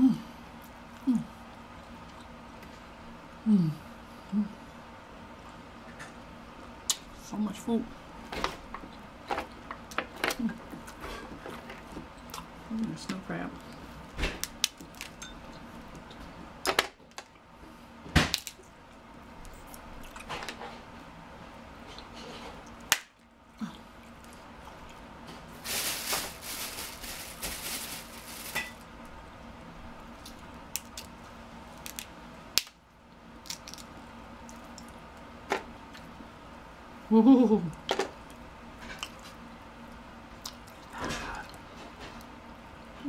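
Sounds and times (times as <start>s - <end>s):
person humming: 0.0s - 0.3s, 1.0s - 1.4s, 3.4s - 4.6s, 37.1s - 37.8s
crab shells cracking: 14.4s - 15.2s, 30.2s - 31.2s, 31.8s - 32.8s, 33.4s - 34.9s.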